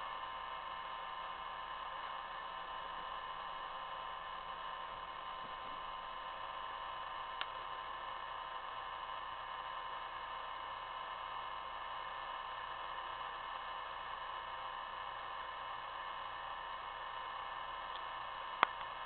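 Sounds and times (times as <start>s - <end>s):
faint hum: 0.0s - 19.0s.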